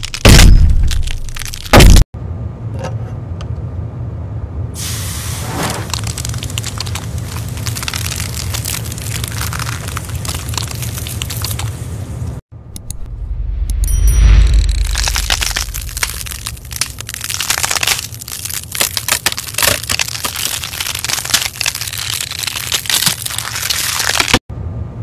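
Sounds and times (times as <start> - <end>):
dense fine crackling: 4.8 - 12.2, 14.2 - 24.4
steady low hum: 6.4 - 19.4.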